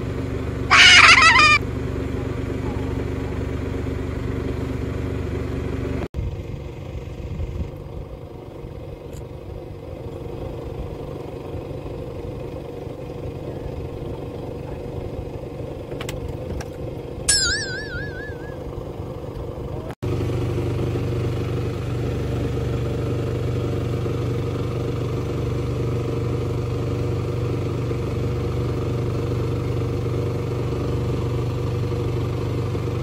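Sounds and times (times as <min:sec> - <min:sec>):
boat engine humming: 0:00.5 - 0:05.8, 0:08.2 - 0:19.9
loud warbling high tone: 0:00.7 - 0:01.6, 0:17.3 - 0:18.8.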